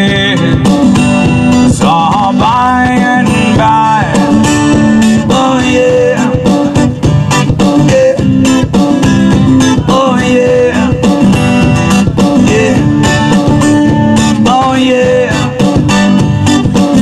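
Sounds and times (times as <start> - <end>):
acoustic guitar strummed and picked: 0.0 - 17.0
foot-played percussion beat: 0.0 - 17.0.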